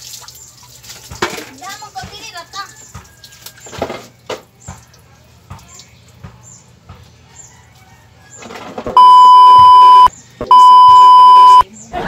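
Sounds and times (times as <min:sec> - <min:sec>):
censor bleep tones: 0:09.0 - 0:11.6.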